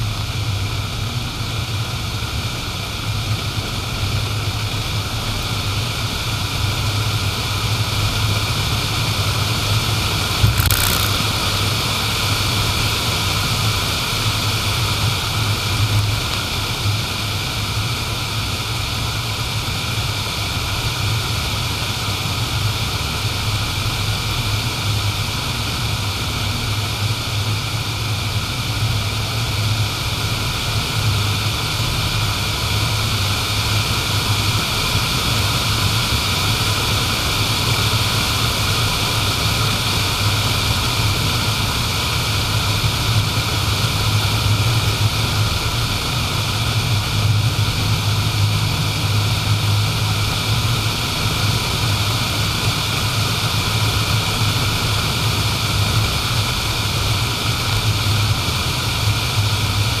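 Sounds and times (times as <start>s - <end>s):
car engine drone: 0.0s - 21.6s, 38.2s - 60.0s
tyre and road noise: 10.3s - 11.8s.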